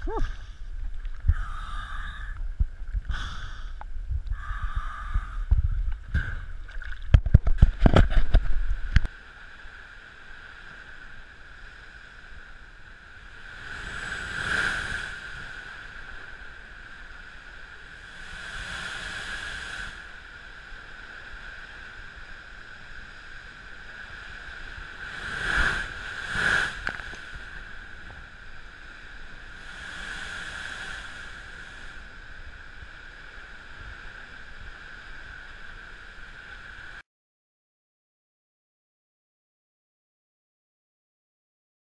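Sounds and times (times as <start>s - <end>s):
faint steady whine: 0.0s - 37.0s
water splashing and sloshing: 5.5s - 9.1s.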